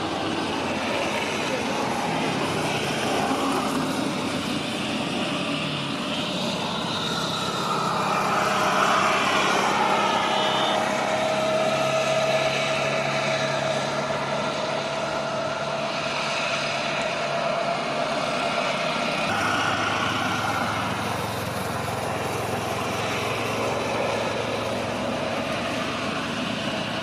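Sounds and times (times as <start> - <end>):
jet engine whine: 0.0 - 27.0
jet engines rushing: 0.0 - 27.0.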